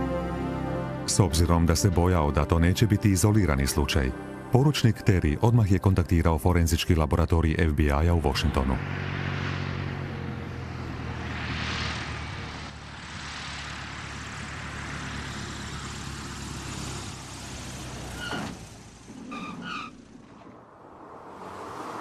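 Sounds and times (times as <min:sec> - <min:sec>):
low engine drone: 0:00.0 - 0:17.8
rushing air: 0:08.8 - 0:15.4.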